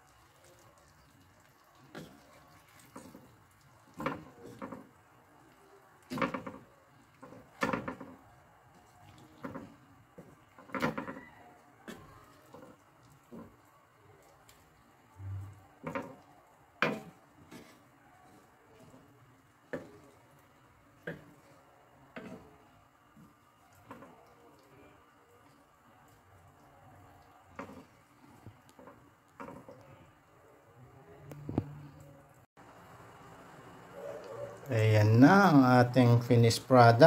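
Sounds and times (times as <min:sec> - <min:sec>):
wooden spatula scraping frying pan: 0:01.9 - 0:05.0, 0:06.0 - 0:08.2, 0:16.8 - 0:24.1, 0:27.5 - 0:29.9.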